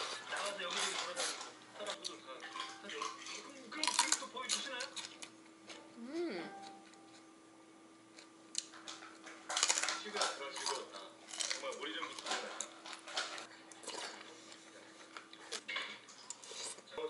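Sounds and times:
utensils clinking against pot: 0.0 - 5.2
chewing: 0.0 - 5.8, 8.1 - 16.9.

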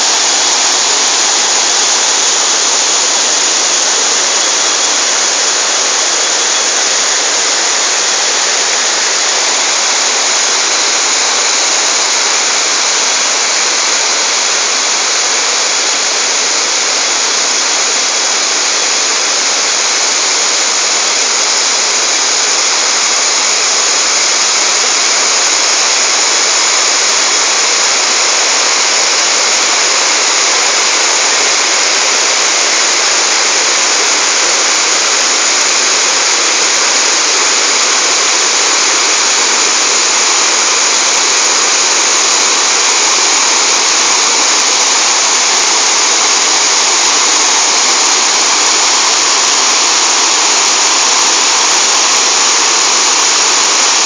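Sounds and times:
water rushing over rocks: 0.0 - 54.0.

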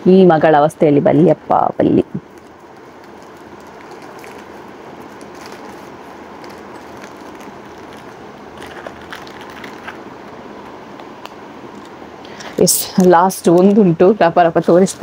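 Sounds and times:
plastic packaging crinkling: 2.2 - 13.9.

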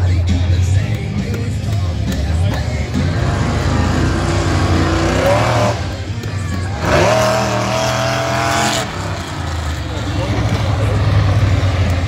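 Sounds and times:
truck engine revving hard: 2.2 - 12.0.

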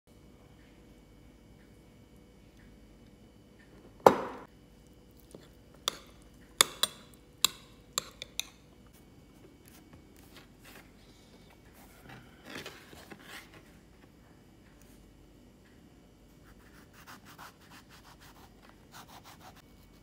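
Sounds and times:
kitchenware clicks and knocks: 4.0 - 4.5.

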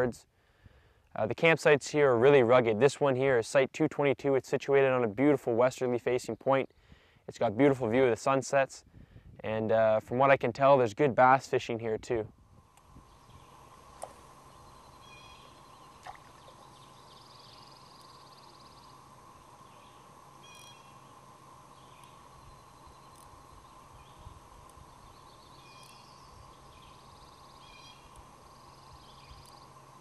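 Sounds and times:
steady low hum: 0.0 - 30.0
songbirds singing: 12.7 - 30.0.

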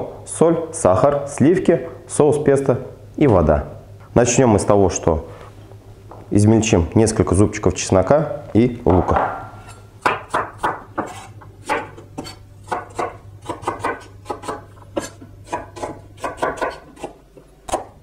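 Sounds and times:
knife chopping on wooden board: 8.9 - 18.0.

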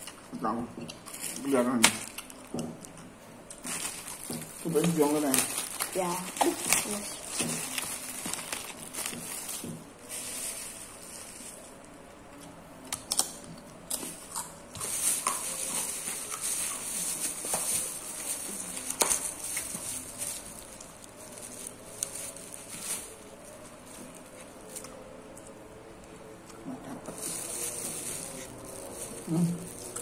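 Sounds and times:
crackers crunching: 0.0 - 30.0
plastic bag rustling: 1.1 - 2.5, 3.5 - 11.8, 14.7 - 24.8, 27.0 - 30.0.

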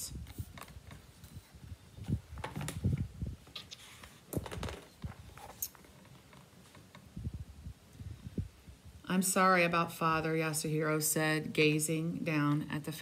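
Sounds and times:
rustles taps and soft knocks: 2.0 - 7.2.

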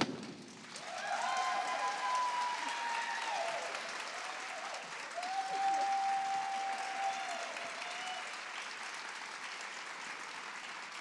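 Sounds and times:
audience applauding: 0.0 - 11.0
high held cry from crowd: 0.8 - 8.3.

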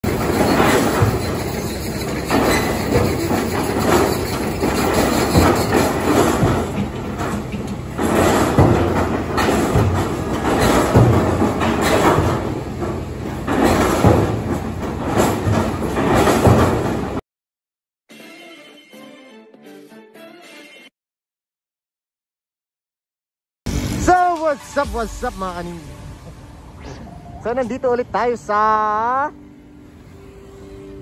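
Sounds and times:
diesel engine running: 0.0 - 17.2
metal clanks and rattles: 0.0 - 17.2.

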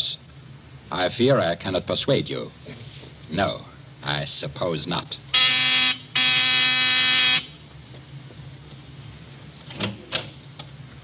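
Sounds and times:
electric buzzer: 5.3 - 7.6.

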